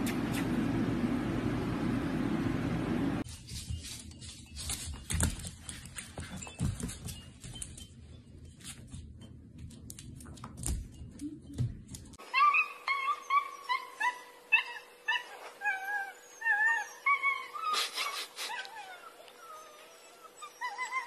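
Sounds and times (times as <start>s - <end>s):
dog whimpering: 12.3s - 21.0s.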